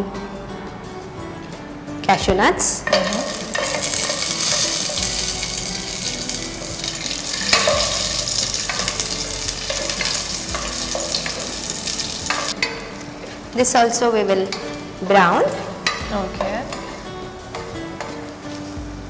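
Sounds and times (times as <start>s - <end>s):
spatula stirring in pot: 2.8s - 13.5s, 15.6s - 18.2s
nuts sizzling in hot fat: 2.9s - 18.8s.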